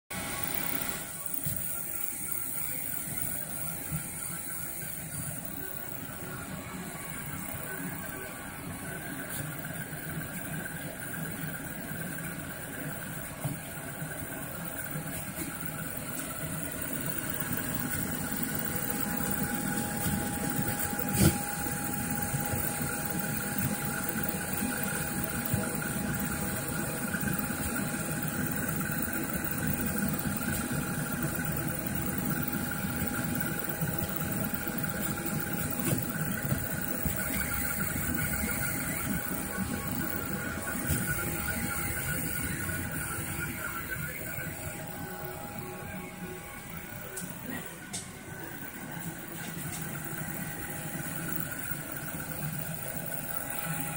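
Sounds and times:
constant hum: 0:00.1 - 0:53.9
stepper motors whirring: 0:00.1 - 0:53.9.

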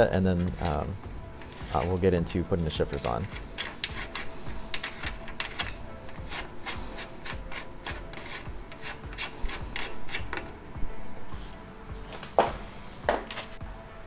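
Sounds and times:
metal threads scraping clicks: 0:02.9 - 0:10.5.

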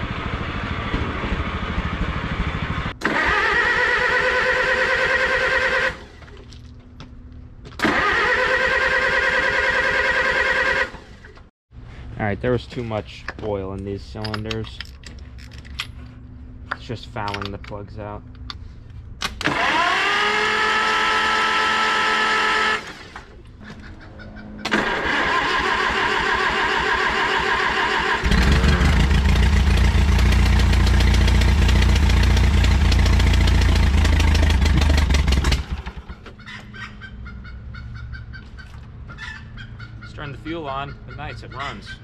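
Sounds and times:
engine running: 0:00.0 - 0:12.0, 0:14.8 - 0:36.8
electric starter cranking: 0:03.0 - 0:06.1, 0:07.8 - 0:11.3, 0:19.2 - 0:23.3, 0:24.7 - 0:36.1.

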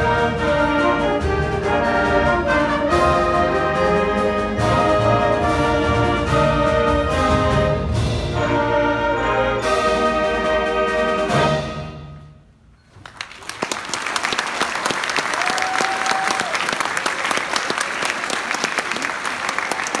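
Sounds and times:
brass band chord: 0:00.0 - 0:12.5
audience applause: 0:13.0 - 0:20.0.

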